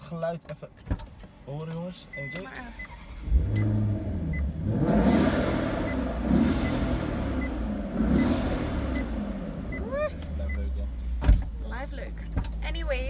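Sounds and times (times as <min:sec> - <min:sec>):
dashboard warning chime beeping: 0:02.0 - 0:10.8
car engine revving: 0:02.7 - 0:13.0.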